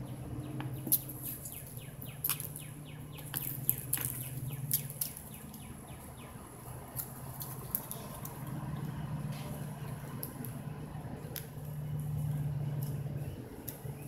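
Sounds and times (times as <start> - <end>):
bird chirping: 0.0 - 6.5
steady low hum: 0.0 - 14.0
sharp taps and scratches: 0.6 - 5.7.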